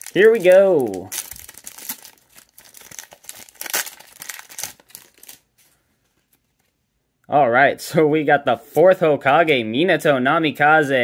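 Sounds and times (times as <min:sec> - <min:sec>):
foil wrapper crinkling and tearing: 0:00.0 - 0:05.7.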